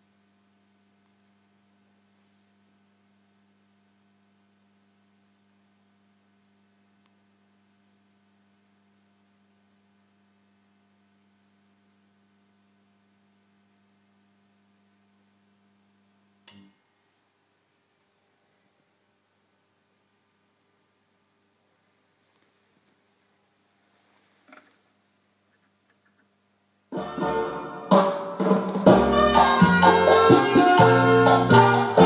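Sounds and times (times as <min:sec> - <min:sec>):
faint mains hum: 0:00.0 - 0:32.0.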